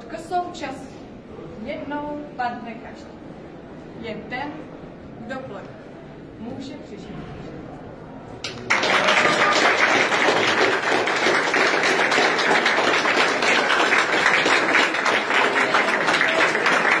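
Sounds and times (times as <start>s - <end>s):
crowd applauding: 8.4s - 17.0s.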